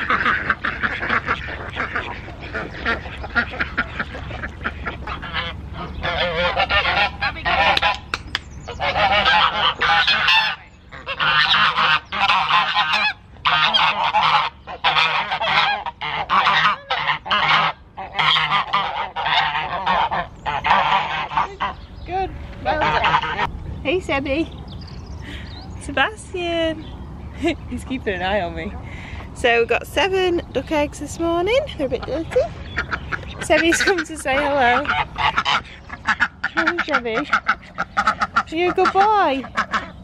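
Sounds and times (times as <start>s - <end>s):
geese honking: 0.0s - 24.5s, 26.0s - 40.0s.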